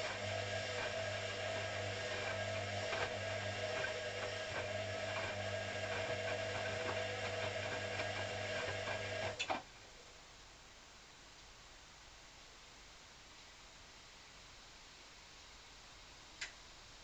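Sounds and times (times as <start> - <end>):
washing machine motor hum: 0.0 - 9.5.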